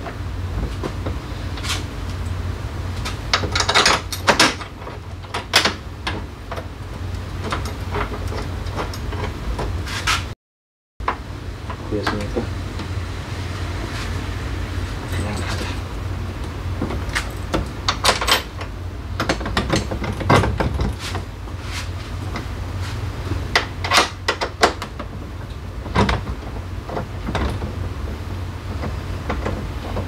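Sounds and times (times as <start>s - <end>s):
steady low hum: 0.0s - 10.4s, 11.0s - 30.0s
tools and parts clattering: 3.0s - 6.7s, 7.4s - 10.3s, 15.0s - 15.9s, 16.8s - 23.0s.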